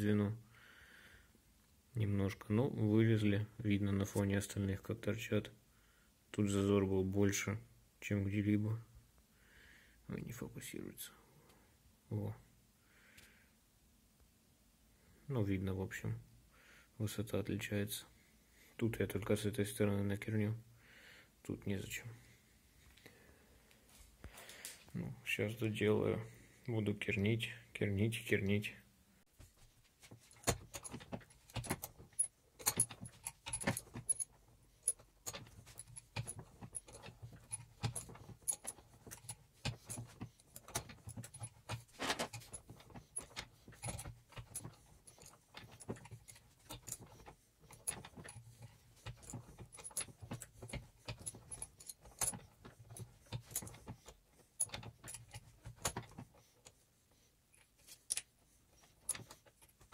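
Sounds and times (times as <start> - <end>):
metal chain clinking and rattling: 30.1 - 56.8, 57.5 - 59.9.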